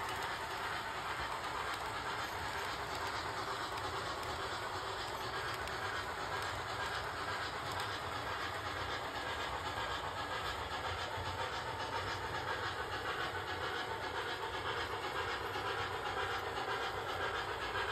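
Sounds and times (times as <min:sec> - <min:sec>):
model trains rolling on track: 0:00.0 - 0:17.9.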